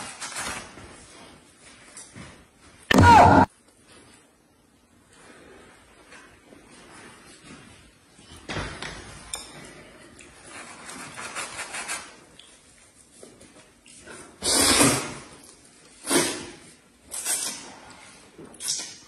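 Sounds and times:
slurping noodles: 0:14.4 - 0:15.3.

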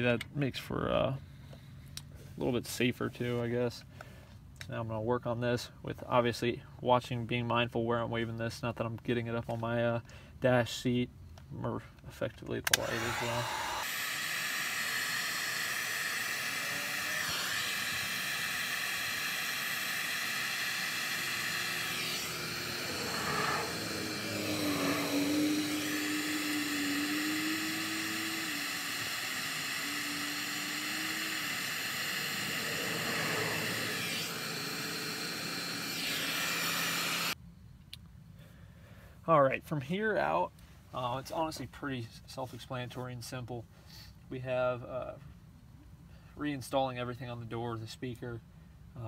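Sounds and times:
heat gun whirring: 0:12.6 - 0:37.4.

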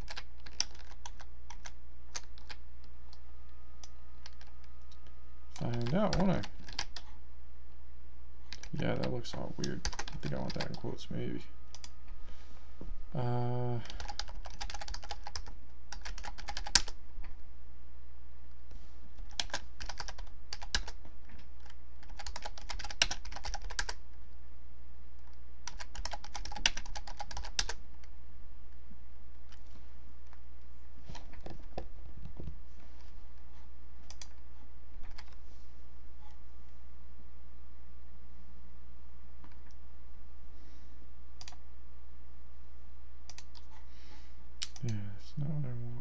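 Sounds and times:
typing on keyboard: 0:00.0 - 0:02.6, 0:04.2 - 0:04.6, 0:05.6 - 0:07.1, 0:08.5 - 0:10.8, 0:13.8 - 0:17.0, 0:19.2 - 0:24.0, 0:25.2 - 0:28.1
steady low hum: 0:00.0 - 0:46.0.

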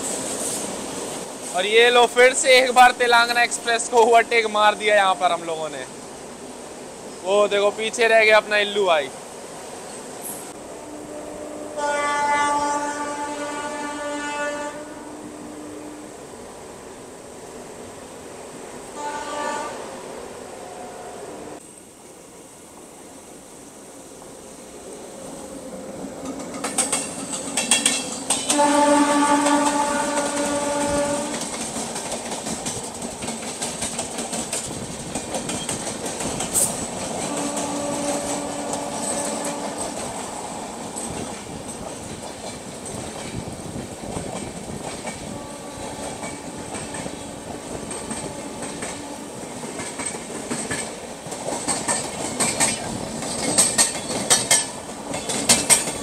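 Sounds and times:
train horn: 0:10.6 - 0:16.2, 0:19.0 - 0:20.0, 0:28.4 - 0:31.6, 0:37.2 - 0:40.0, 0:45.2 - 0:49.4
electric trains running: 0:22.8 - 0:56.0
wheels clattering over rails: 0:26.2 - 0:56.0.

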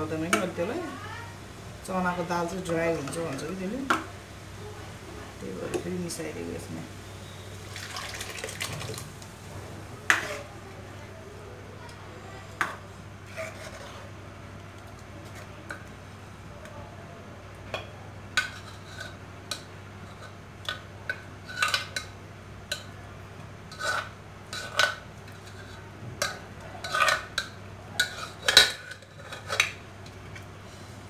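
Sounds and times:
ladle clinking and scraping pan: 0:10.1 - 0:10.5, 0:23.7 - 0:29.8.

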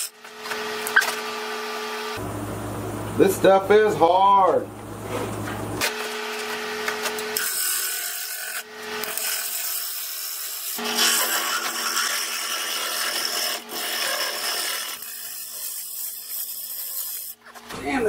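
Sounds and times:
wood lathe humming: 0:06.4 - 0:15.4.

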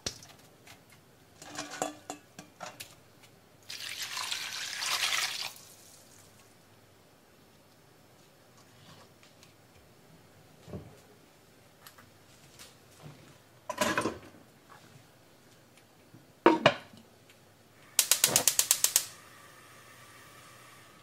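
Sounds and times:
gas flame hissing: 0:17.8 - 0:21.0
gas burner igniter clicking: 0:18.0 - 0:19.2.

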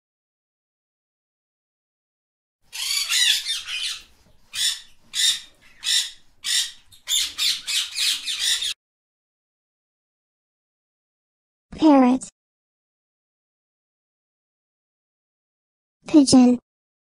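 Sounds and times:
parrot squawking: 0:02.7 - 0:08.8.

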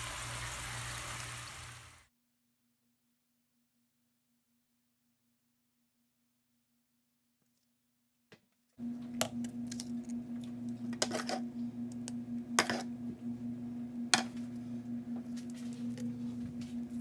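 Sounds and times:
steady fluttering hum: 0:08.8 - 0:17.0.

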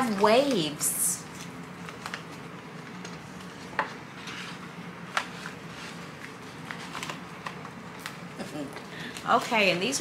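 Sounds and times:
packaging rustling: 0:01.3 - 0:08.2.

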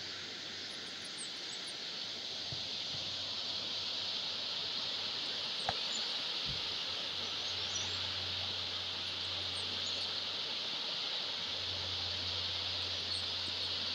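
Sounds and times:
high insect drone: 0:00.0 - 0:13.9.

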